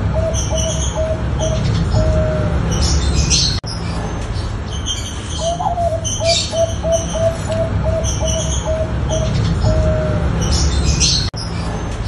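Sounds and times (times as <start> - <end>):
dove cooing: 0.0 - 3.6, 5.4 - 11.1
small birds chirping: 0.0 - 12.0
steady low rumble: 0.0 - 12.0.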